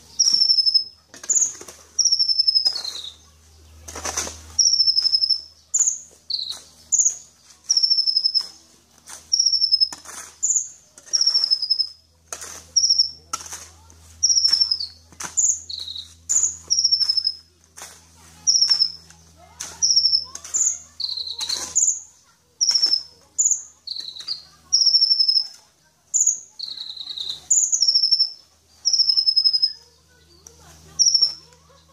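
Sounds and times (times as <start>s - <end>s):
sharp bird clicks: 0.1s - 3.2s, 3.9s - 8.6s, 9.3s - 12.0s, 14.2s - 17.4s, 18.5s - 22.0s, 22.6s - 25.6s, 26.2s - 29.8s.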